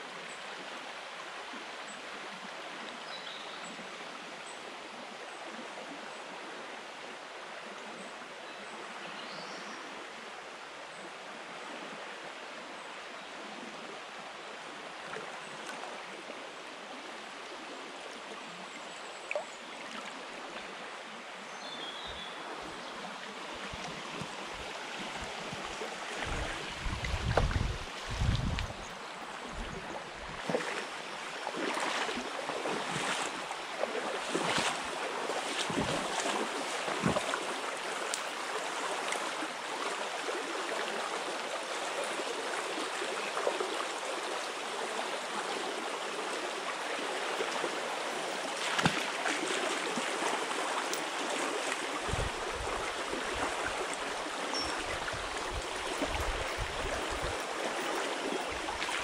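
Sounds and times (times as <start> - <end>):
stream rushing over stones: 19.2 - 59.0.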